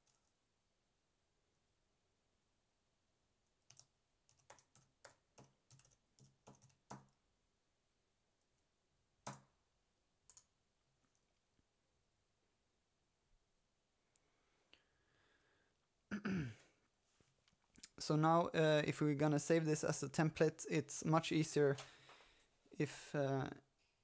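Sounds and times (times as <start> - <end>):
computer keyboard typing: 0.0 - 0.3, 3.6 - 7.2, 9.2 - 9.6, 10.3 - 10.5.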